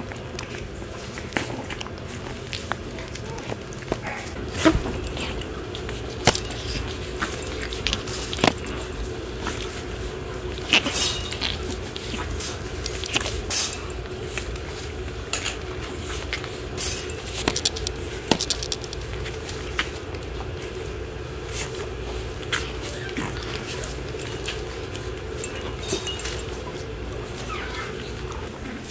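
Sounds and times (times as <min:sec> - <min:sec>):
puppy paws clicking and scuffing: 0:00.0 - 0:28.9.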